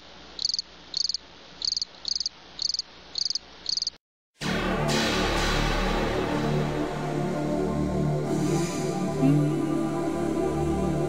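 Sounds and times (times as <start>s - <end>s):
cricket chirping: 0.3s - 4.0s
music: 4.4s - 11.0s.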